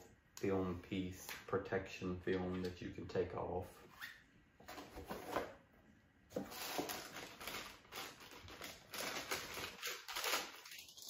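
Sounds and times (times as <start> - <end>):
plastic bag crinkling: 6.5 - 11.0.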